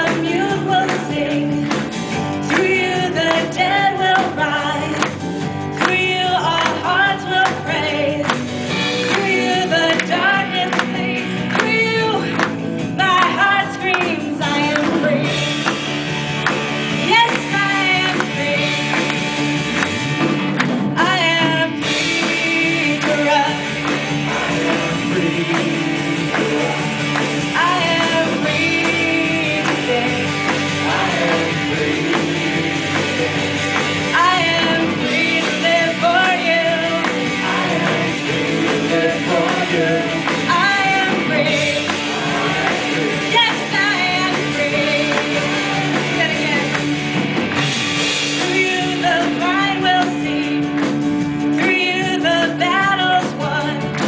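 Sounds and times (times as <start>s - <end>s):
woman singing lead: 0.0s - 15.8s, 16.9s - 20.0s, 20.8s - 47.0s, 48.3s - 54.0s
band playing upbeat song: 0.0s - 54.0s
second singer: 17.0s - 46.9s.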